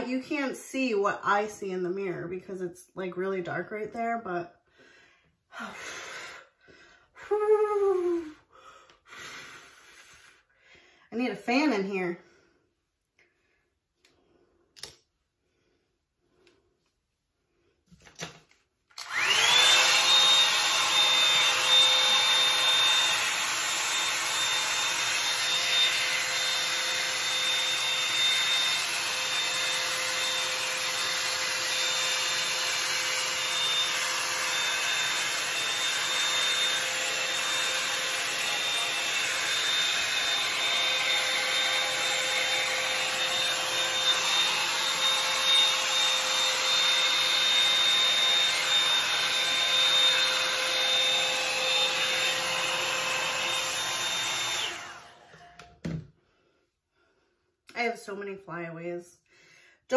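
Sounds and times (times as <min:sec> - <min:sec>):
hot-air brush motor whine: 0:19.0 - 0:55.7.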